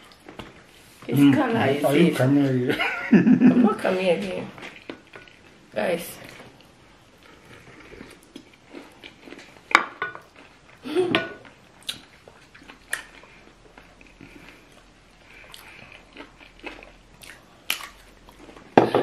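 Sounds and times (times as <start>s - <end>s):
chewing food: 4.5s - 5.6s, 6.2s - 10.8s, 11.4s - 18.8s.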